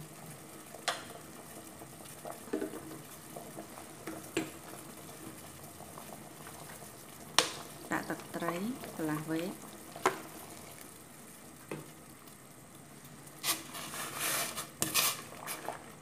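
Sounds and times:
broth bubbling in a pot: 0.0s - 16.0s.

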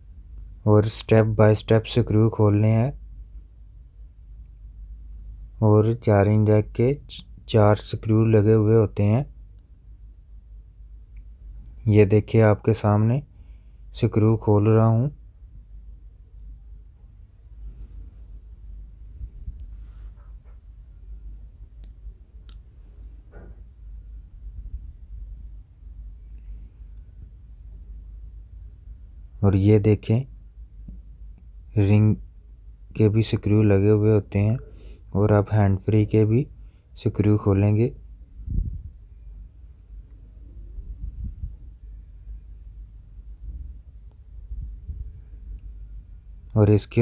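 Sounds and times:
faint small clicks: 21.7s - 22.7s, 26.3s - 27.1s.

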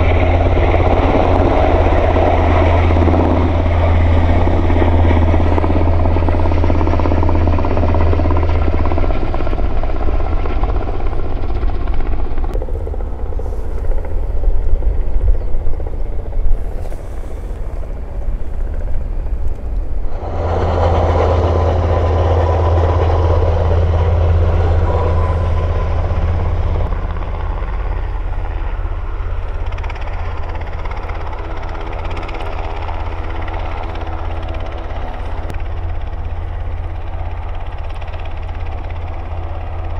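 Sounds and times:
helicopter rotor hum: 0.0s - 39.9s
helicopter turbine noise: 0.0s - 39.9s.

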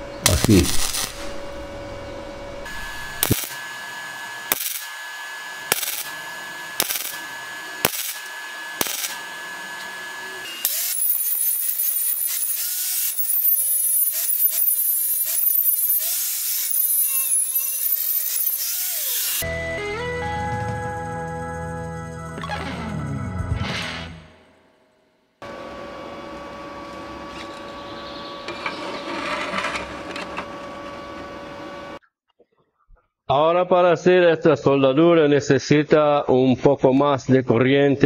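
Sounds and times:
angle grinder grinding metal: 0.2s - 1.6s, 2.6s - 19.4s
welding arc bursts: 0.2s - 1.6s, 2.7s - 19.4s.

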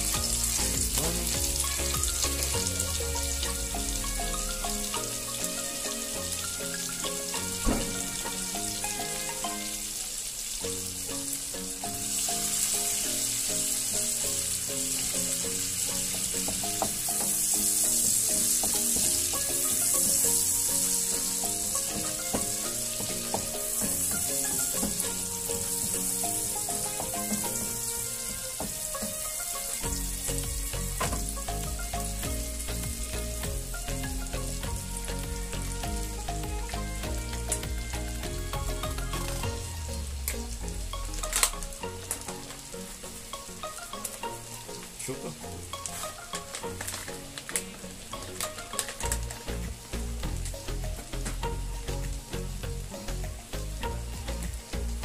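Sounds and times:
butter sizzling in a frying pan: 0.0s - 34.9s.

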